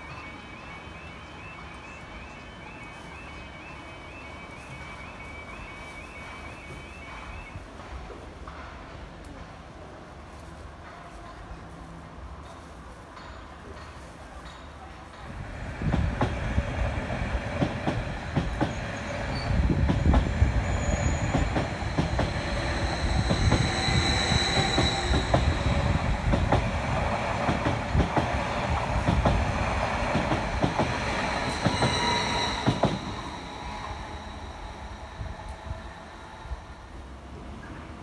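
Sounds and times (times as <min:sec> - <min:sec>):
electric train rumble: 0:15.2 - 0:38.0.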